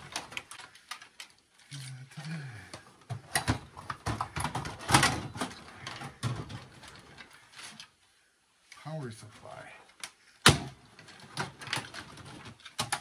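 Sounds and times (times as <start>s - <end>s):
metal computer case clattering: 3.3s - 7.1s.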